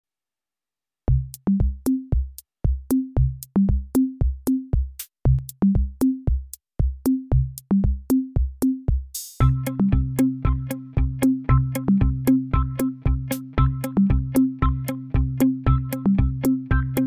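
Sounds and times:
electronic drum machine beat: 1.1 - 17.0
low bass notes: 9.4 - 17.0.

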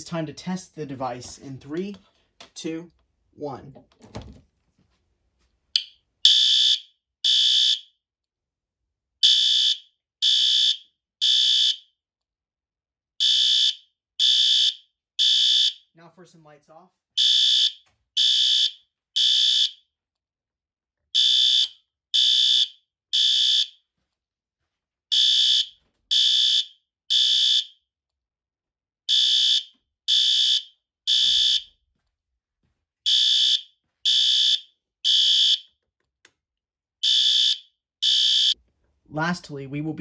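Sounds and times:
fire alarm horn blasts: 6.3 - 7.8, 9.2 - 11.8, 13.2 - 15.9, 17.2 - 19.8, 21.2 - 23.8, 25.1 - 27.7, 29.1 - 31.7, 33.1 - 35.7, 37.0 - 38.6.

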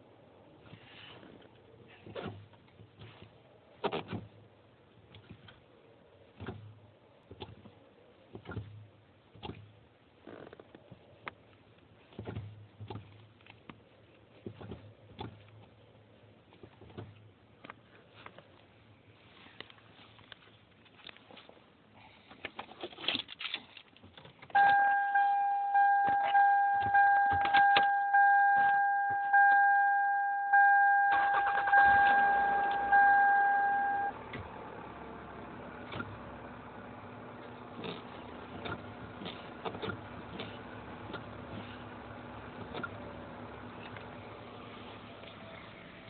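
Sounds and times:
car engine starting and idling: 24.3 - 46.0
car dashboard warning chime: 24.6 - 34.2.

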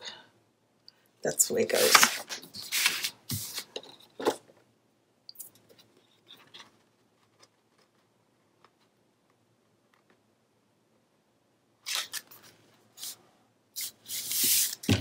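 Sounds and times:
paper rustling: 1.7 - 3.8, 11.8 - 13.2.

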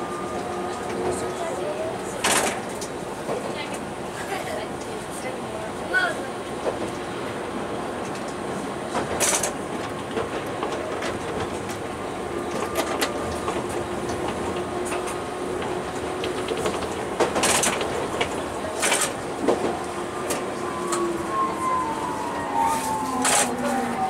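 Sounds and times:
wheels rumbling on rail: 0.0 - 24.0
wheels clacking over track: 8.2 - 24.0.

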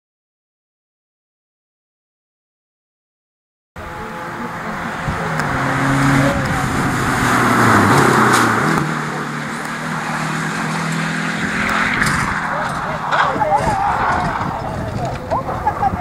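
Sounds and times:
rally car engine passing: 3.8 - 16.0.

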